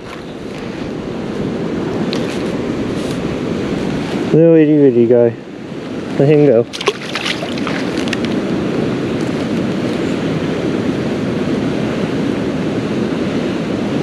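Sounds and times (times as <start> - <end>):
flowing creek water: 6.2 - 8.8.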